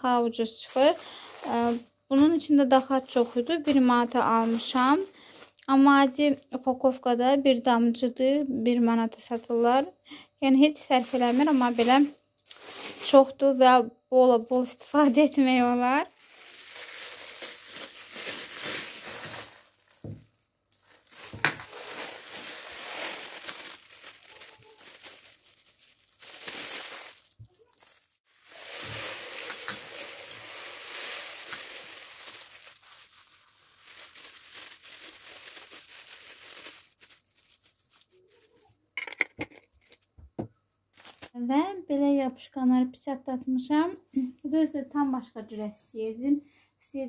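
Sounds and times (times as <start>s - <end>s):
plastic bags crinkling: 0.4s - 6.6s, 10.8s - 13.4s, 14.3s - 38.7s, 40.9s - 41.4s
herbs poured into glass jars: 0.6s - 6.3s, 10.8s - 13.3s, 14.5s - 20.1s, 20.8s - 38.6s.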